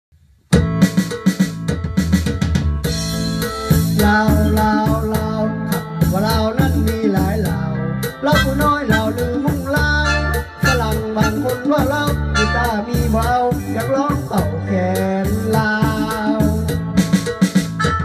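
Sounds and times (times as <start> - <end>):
drum rhythm with bass: 0.2 - 18.0
wavering keyboard melody: 8.0 - 14.3, 15.4 - 18.0.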